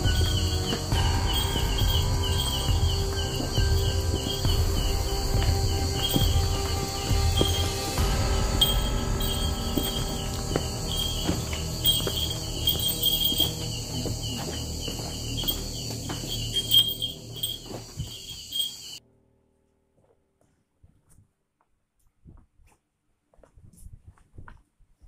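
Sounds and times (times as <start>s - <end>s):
low rumble: 0.0s - 18.6s
footsteps on rocky ground: 0.0s - 19.0s
night insects chirping: 0.0s - 19.0s.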